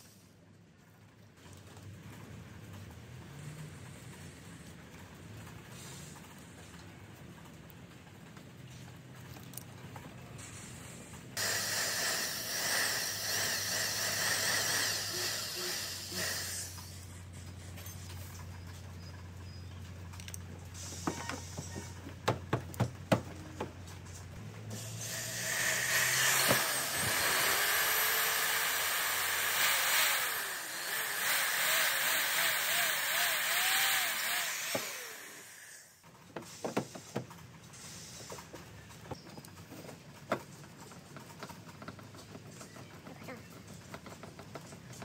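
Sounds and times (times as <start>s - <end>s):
heat gun hissing: 11.4s - 17.1s, 24.7s - 37.0s.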